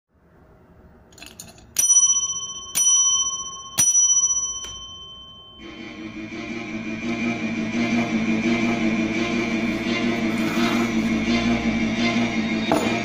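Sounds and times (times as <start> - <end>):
desk bell ringing: 1.2 - 6.0
music: 5.6 - 13.0.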